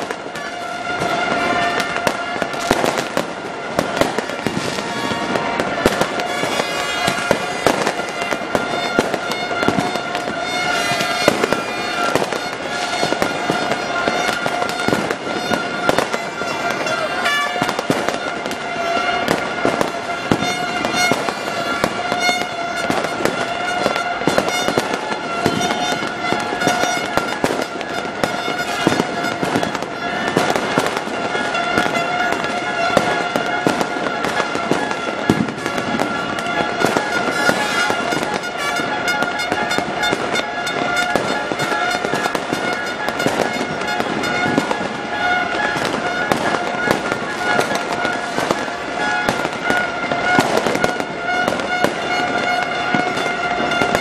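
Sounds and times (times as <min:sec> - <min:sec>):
fireworks bursting and crackling: 0:00.0 - 0:54.0.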